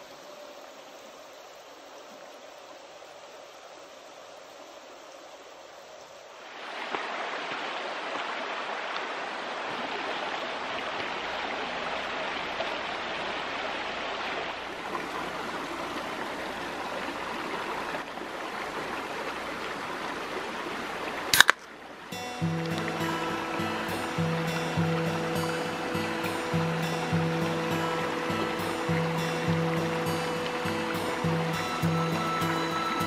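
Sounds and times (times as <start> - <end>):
stream running over rocks: 0.0 - 33.0
can pull tab snapping open: 21.4 - 21.7.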